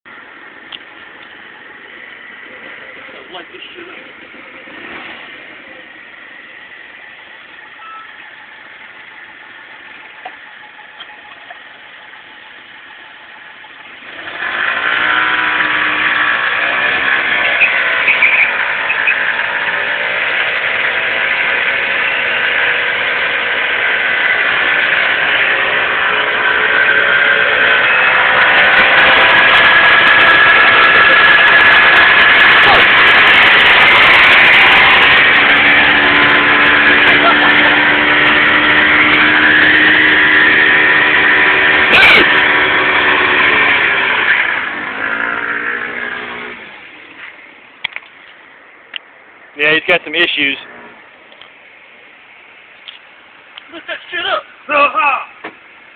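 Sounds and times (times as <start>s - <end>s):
scooter engine revving: 1.9s - 7.2s, 13.9s - 47.4s.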